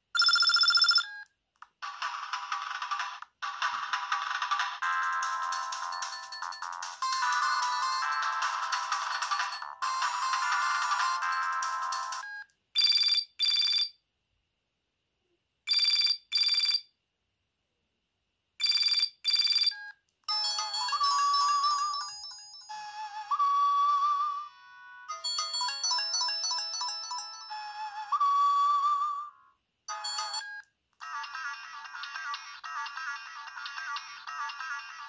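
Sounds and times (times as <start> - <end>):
polyphonic melody ringtone: 0.2 - 1.0, 4.8 - 13.9, 20.3 - 29.3, 29.9 - 32.3
phone double-beep ring: 0.2 - 1.1.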